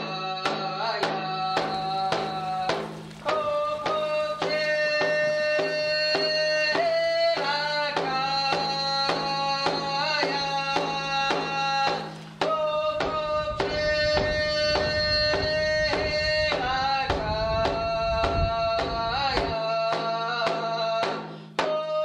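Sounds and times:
person singing long notes: 0:00.0 - 0:22.0
steady drum beat: 0:01.0 - 0:21.8.

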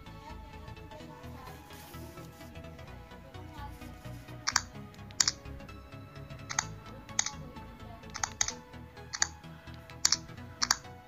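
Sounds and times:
background music: 0:00.0 - 0:11.0
touchscreen tap clicks: 0:04.5 - 0:05.4, 0:06.5 - 0:07.4, 0:08.1 - 0:09.4, 0:10.0 - 0:10.9.

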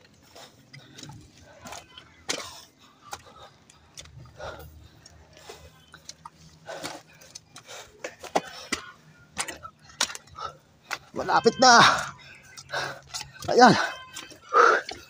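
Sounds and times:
sharp scuffs and clicks: 0:00.0 - 0:15.0
man breathing hard: 0:00.1 - 0:11.1, 0:11.9 - 0:15.0.

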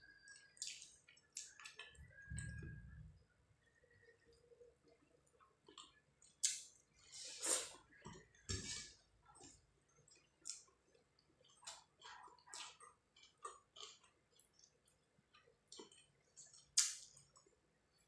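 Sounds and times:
chewing: 0:00.2 - 0:02.6, 0:04.9 - 0:06.7, 0:09.3 - 0:17.6.

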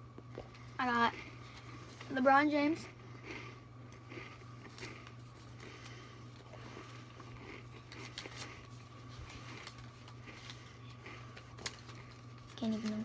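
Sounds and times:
steady low hum: 0:00.0 - 0:13.0
paper crinkling and rustling: 0:07.8 - 0:13.0.

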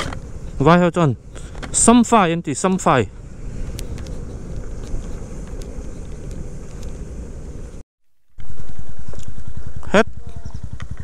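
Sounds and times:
motorcycle engine rumbling: 0:00.0 - 0:07.8, 0:08.4 - 0:11.0
wind noise on microphone: 0:00.0 - 0:07.8.

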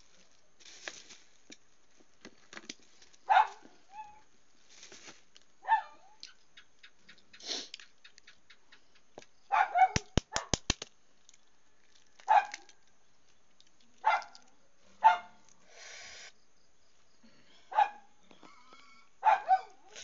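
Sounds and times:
dog barking: 0:03.3 - 0:04.2, 0:05.6 - 0:06.2, 0:09.5 - 0:10.6, 0:12.3 - 0:12.7, 0:14.0 - 0:15.4, 0:17.7 - 0:18.1, 0:19.2 - 0:20.0
brief hiss: 0:07.4 - 0:07.7
sharp clicks: 0:10.0 - 0:10.9.

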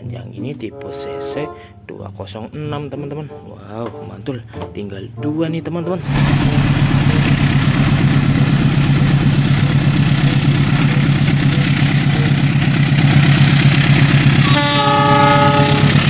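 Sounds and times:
train horn blast: 0:00.6 - 0:02.0, 0:14.4 - 0:16.0
locomotive engine running: 0:05.8 - 0:16.0.

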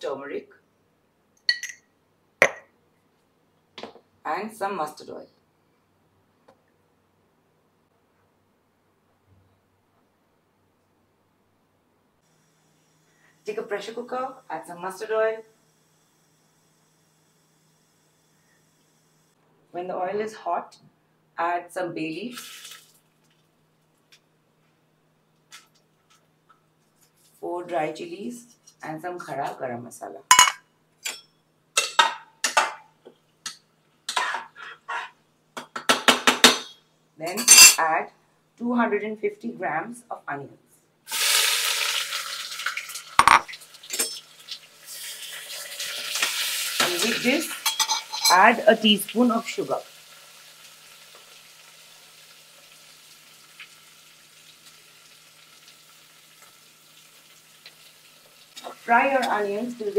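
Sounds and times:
onions frying in oil: 0:22.3 - 0:23.0, 0:41.1 - 0:59.9
metal spatula scraping pot: 0:33.4 - 0:35.2, 0:47.0 - 0:48.5.

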